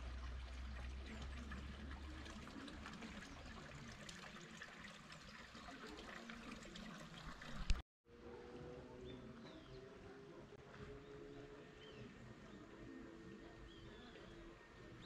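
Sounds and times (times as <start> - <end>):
water splashing and trickling: 0.0 - 7.8.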